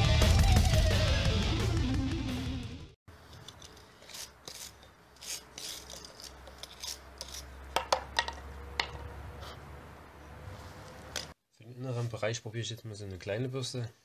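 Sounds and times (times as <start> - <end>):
background music: 0.0 - 3.0
wire brush scrubbing charred wood: 3.1 - 7.7.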